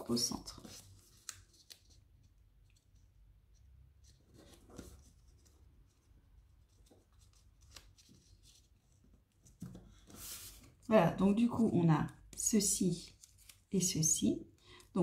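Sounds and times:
paper rustling and creasing: 3.9s - 10.9s, 12.7s - 14.0s.

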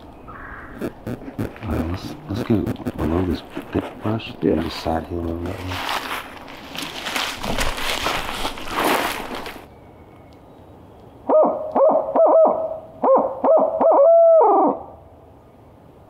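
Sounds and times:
rustling brush and dry leaves: 0.0s - 10.8s
owl hoots call: 11.2s - 15.0s.

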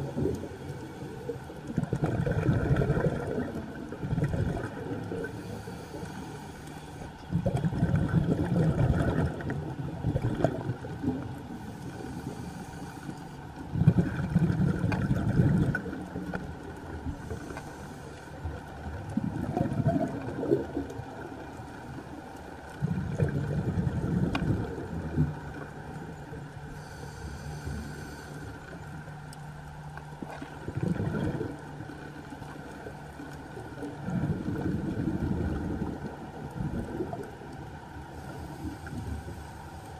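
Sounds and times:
regulator exhalation bubbling: 1.8s - 5.9s, 7.3s - 10.8s
diver breathing through regulator: 5.1s - 7.5s, 11.5s - 13.5s, 17.2s - 18.5s, 26.7s - 28.8s, 38.1s - 39.9s.

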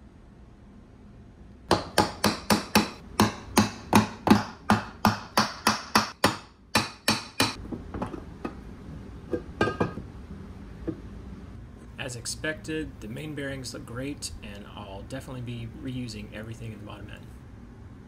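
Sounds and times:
hammer striking metal: 1.7s - 7.6s.

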